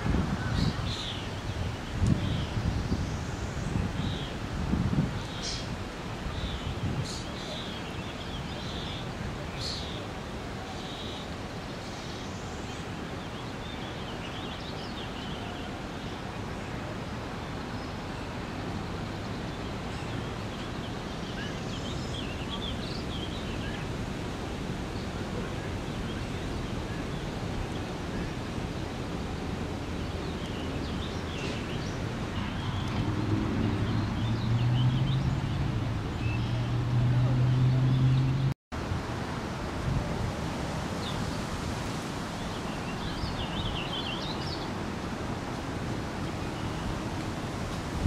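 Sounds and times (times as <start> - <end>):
steady background hiss: 0.0 - 34.2.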